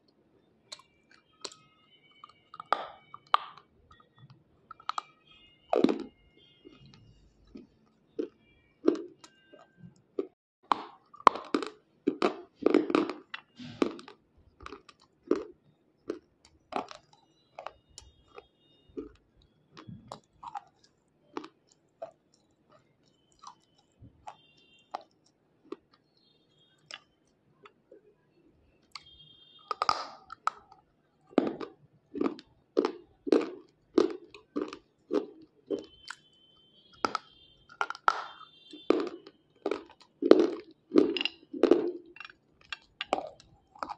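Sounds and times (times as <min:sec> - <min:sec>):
slate pencil crunching between teeth: 0:37.0 - 0:43.9.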